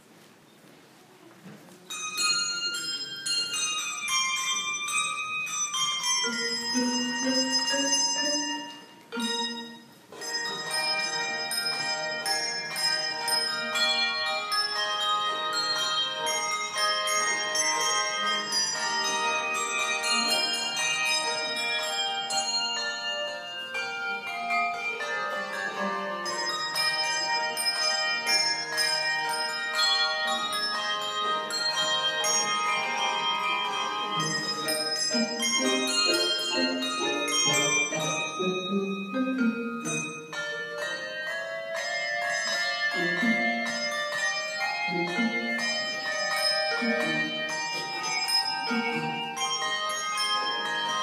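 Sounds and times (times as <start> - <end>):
handbells playing a tune: 1.8 - 51.0.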